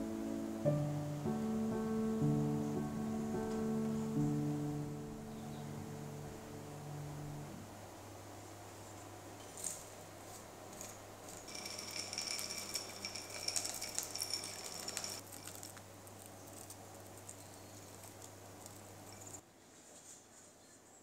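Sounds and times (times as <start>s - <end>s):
low hum: 0.0s - 8.4s
nuts pattering onto batter: 9.6s - 19.4s
spoon clinking on glass: 11.5s - 15.6s.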